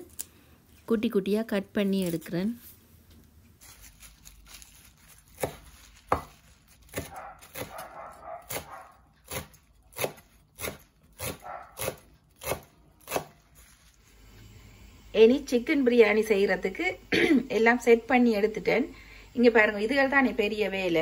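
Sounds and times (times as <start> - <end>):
cleaver chopping on wooden board: 5.4 - 7.9, 8.5 - 13.4.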